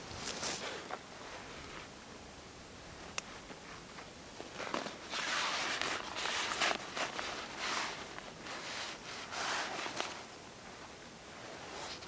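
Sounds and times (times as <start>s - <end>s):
fabric bag rustling: 4.5s - 10.3s.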